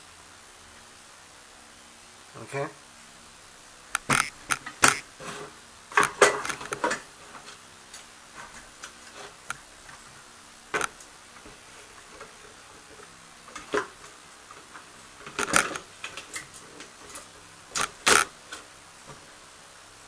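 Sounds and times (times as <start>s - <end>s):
sharp clicks and knocks of handling: 3.9s - 5.0s, 5.9s - 10.0s, 10.8s - 11.1s, 14.5s - 19.2s.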